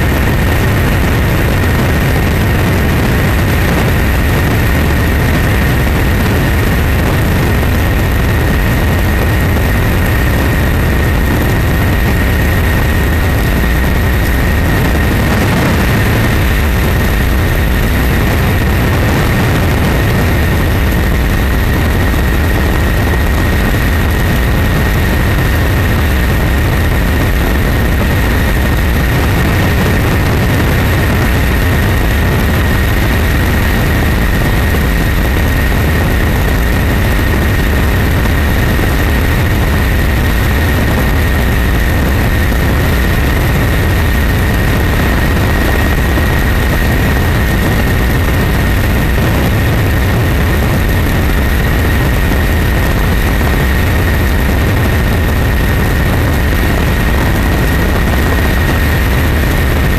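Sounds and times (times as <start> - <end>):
aircraft engine rumble: 0.0 - 59.9
high steady engine whine: 0.0 - 59.9.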